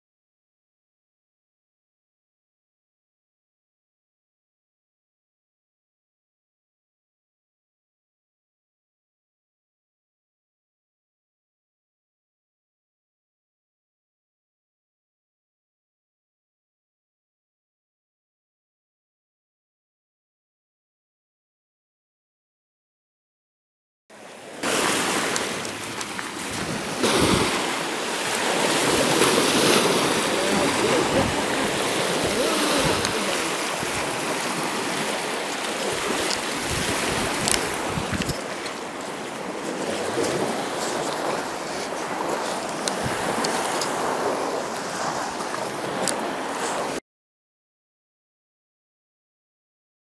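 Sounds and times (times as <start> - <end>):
small waves breaking on shore: 24.1 - 47.0
wind buffeting microphone: 24.7 - 46.9.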